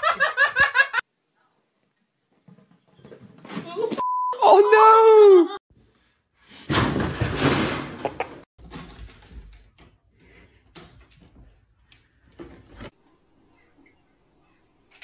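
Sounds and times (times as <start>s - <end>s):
cat tree crashing over: 6.7s - 8.0s.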